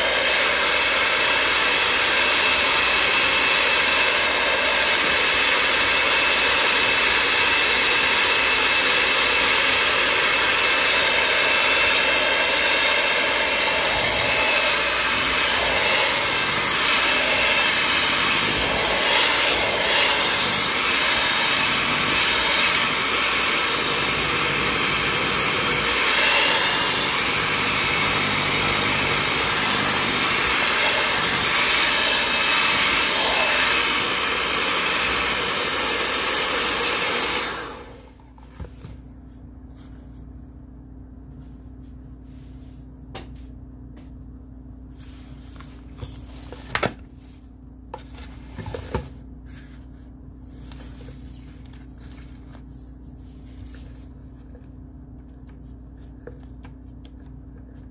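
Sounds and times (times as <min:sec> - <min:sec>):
electric mixer running: 0:00.0 - 0:38.2.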